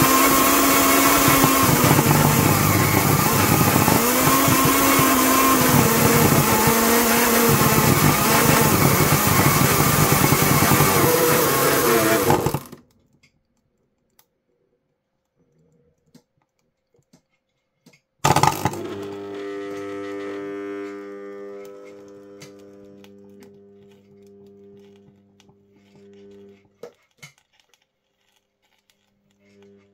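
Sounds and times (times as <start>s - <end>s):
mixer motor whine: 0.0s - 12.8s, 18.2s - 26.8s.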